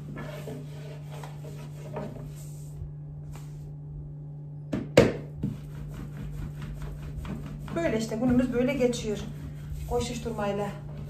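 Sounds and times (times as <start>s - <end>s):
rolling pin rubbing on dough: 0.0s - 2.8s, 5.4s - 11.0s
steady low hum: 0.0s - 11.0s.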